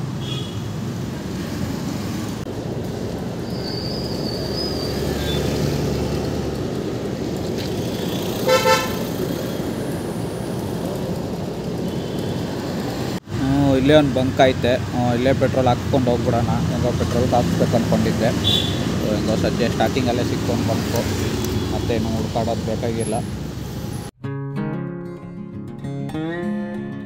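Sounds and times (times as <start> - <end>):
motorcycle riding noise: 0.0 - 24.1
vehicle horn honk: 0.2 - 0.7, 8.4 - 9.1, 18.4 - 18.9.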